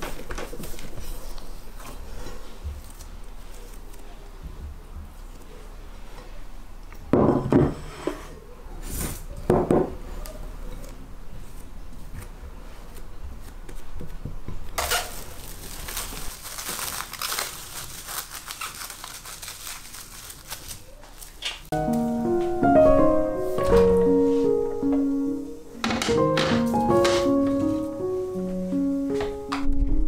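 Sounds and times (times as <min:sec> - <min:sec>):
cling film crinkling: 0:14.8 - 0:21.7.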